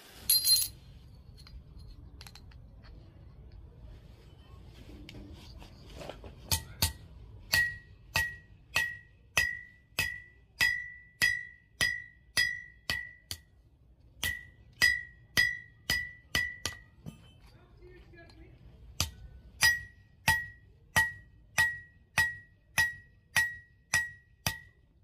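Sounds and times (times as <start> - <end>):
hammer striking steel: 6.4 - 13.5, 14.2 - 17.5, 19.0 - 24.8.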